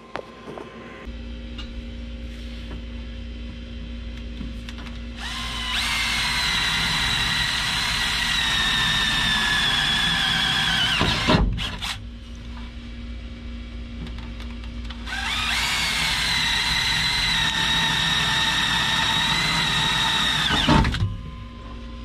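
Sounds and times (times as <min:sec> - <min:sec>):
cordless drill boring into metal: 0:05.2 - 0:12.0, 0:15.1 - 0:21.0.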